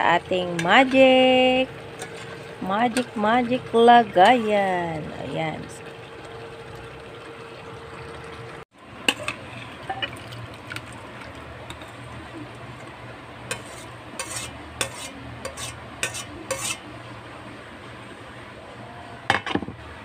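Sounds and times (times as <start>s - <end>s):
low steady hum: 0.0s - 20.0s
ladle clinking and scraping pot: 2.0s - 3.1s, 9.0s - 10.4s, 13.5s - 16.8s.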